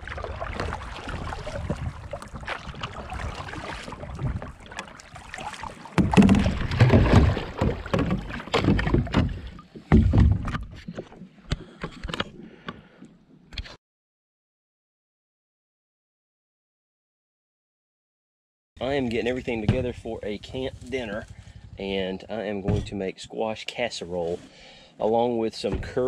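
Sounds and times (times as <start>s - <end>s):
water at board's nose: 0.0s - 13.6s
wind: 0.0s - 13.8s, 18.8s - 26.0s
heavy knocks and bumps: 6.0s - 10.7s, 19.5s - 20.2s.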